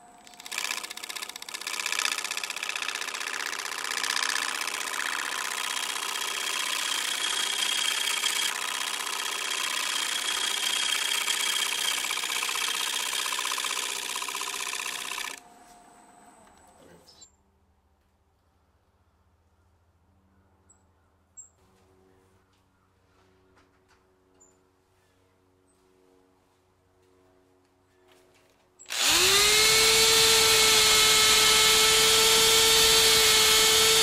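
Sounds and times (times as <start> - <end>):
lathe motor hum: 0.0 - 15.4, 28.9 - 34.0
gouge cutting wood on a lathe: 0.4 - 15.4, 28.9 - 34.0.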